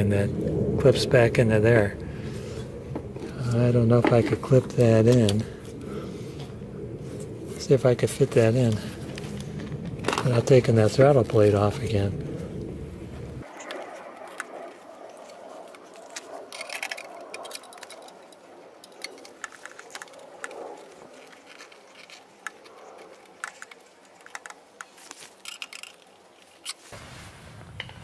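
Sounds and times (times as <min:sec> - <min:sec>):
small metal parts clicking: 0:16.0 - 0:20.5, 0:21.2 - 0:26.8
soft rustling: 0:26.4 - 0:27.7.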